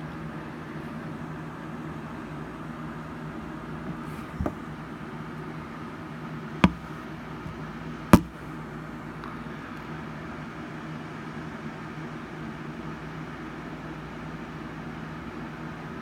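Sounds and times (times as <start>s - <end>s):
low mechanical hum: 0.0s - 16.0s
sharp knocks: 4.4s - 4.6s, 6.6s - 6.9s, 8.2s - 8.4s.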